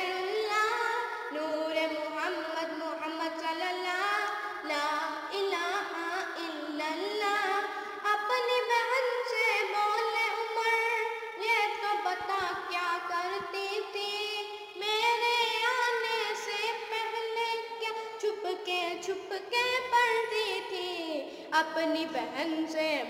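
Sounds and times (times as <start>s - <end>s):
boy singing devotional song: 0.0s - 23.0s.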